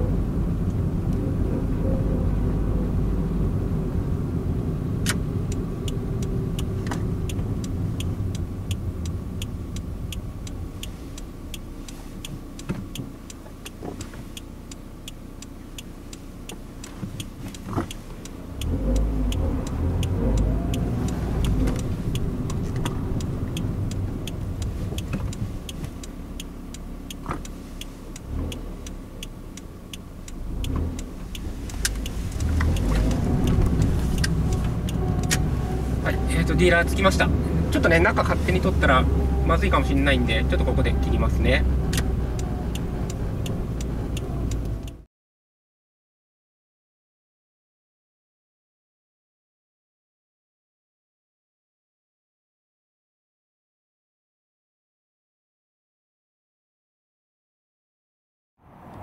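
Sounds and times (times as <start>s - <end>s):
car engine and road noise: 0.0s - 45.1s, 58.6s - 59.0s
faint regular ticking: 5.1s - 45.0s.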